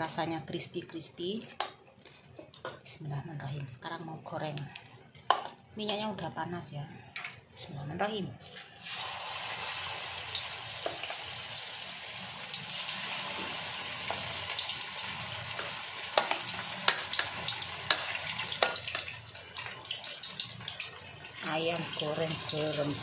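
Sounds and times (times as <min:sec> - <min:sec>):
chicken deep-frying in oil: 0:08.8 - 0:23.0.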